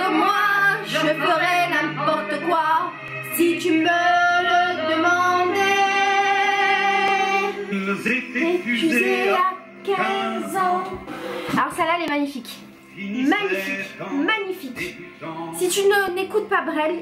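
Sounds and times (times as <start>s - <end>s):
woman singing with vibrato: 0.0s - 7.6s, 8.4s - 11.1s
low musical accompaniment: 0.0s - 17.0s.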